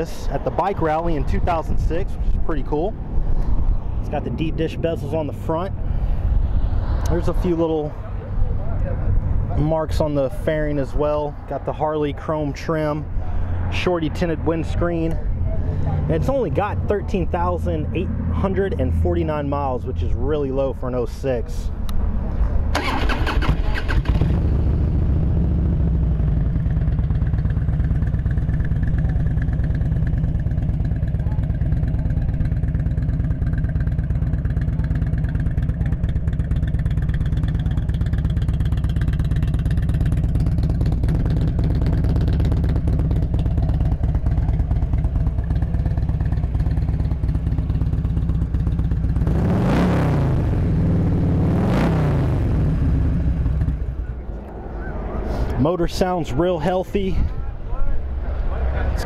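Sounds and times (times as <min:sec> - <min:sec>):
motorcycle engine revving: 0:22.7 - 0:55.2
motorcycle engine idling: 0:22.8 - 0:49.3.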